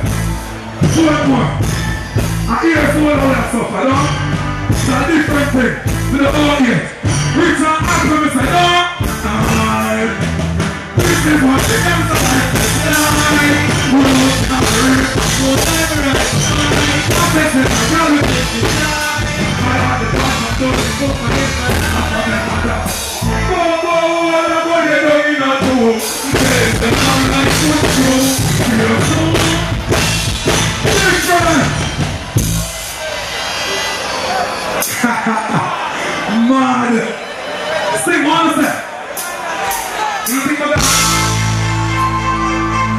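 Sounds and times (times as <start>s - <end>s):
person singing into a microphone: 11.0s - 29.9s.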